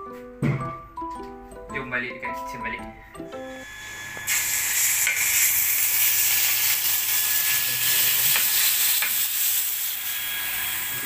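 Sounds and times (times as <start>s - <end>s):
meat sizzling in oil: 3.6s - 11.0s.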